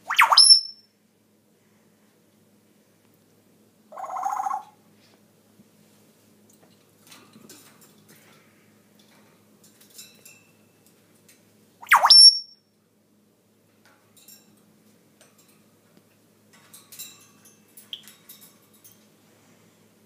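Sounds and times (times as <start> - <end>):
parrot call: 0.0 - 0.8, 3.9 - 4.8, 11.8 - 12.5.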